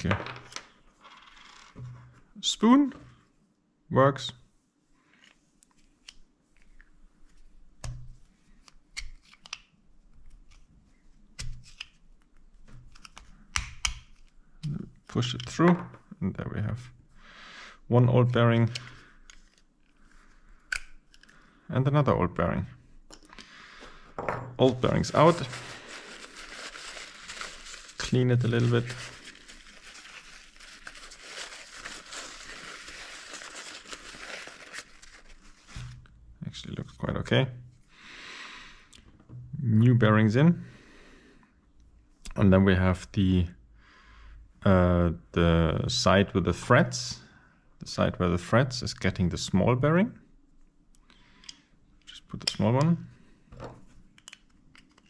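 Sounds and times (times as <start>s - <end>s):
paper towel rustling and crinkling: 24.6s - 36.0s.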